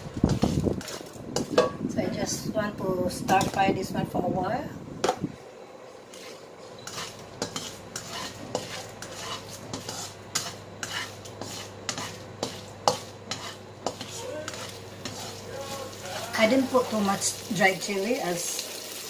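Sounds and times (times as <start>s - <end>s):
spatula scraping a wok: 0.0s - 1.8s, 6.0s - 17.4s
chillies sizzling in oil: 0.0s - 4.6s, 5.5s - 19.0s.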